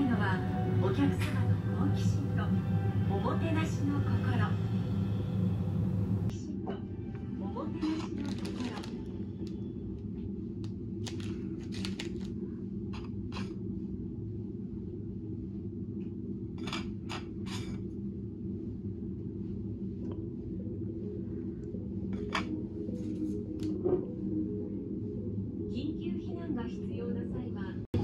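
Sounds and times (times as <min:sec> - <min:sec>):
engine and ventilation hum: 0:00.0 - 0:07.2, 0:08.2 - 0:22.9
paper cards clicking and rustling: 0:08.1 - 0:09.0, 0:11.0 - 0:12.4.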